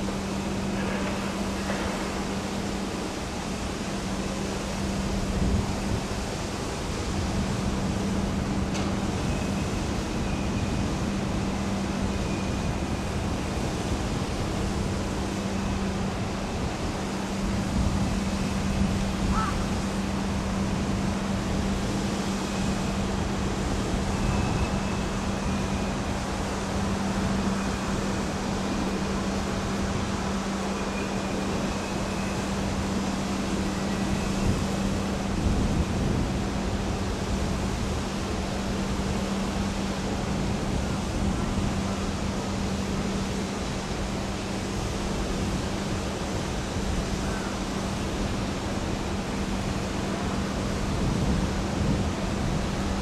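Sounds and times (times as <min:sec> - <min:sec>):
freight train rumbling: 0:00.0 - 0:53.0.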